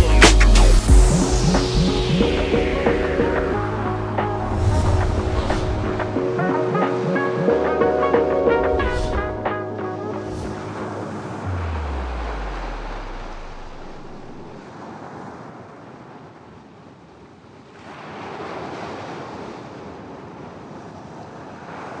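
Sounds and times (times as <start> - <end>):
deep low musical note: 7.9 - 14.6
waves washing onto a beach: 10.2 - 22.0.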